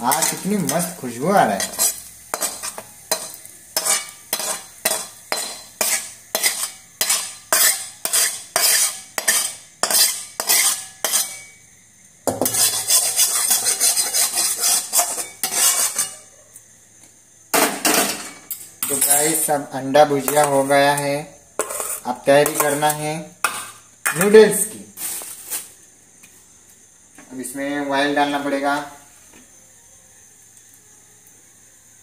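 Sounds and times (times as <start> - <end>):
metal spatula scraping a pan: 0.0 - 11.6, 12.3 - 16.3, 17.6 - 25.7.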